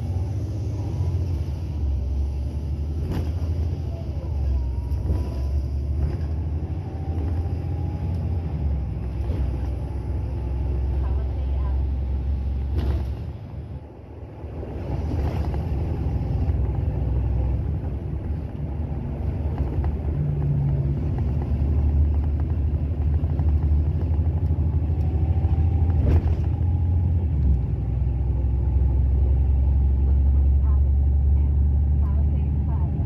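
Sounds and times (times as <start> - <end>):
bus diesel engine droning: 0.0 - 33.0
bus body knocks and rattles: 12.6 - 13.4, 25.7 - 26.6.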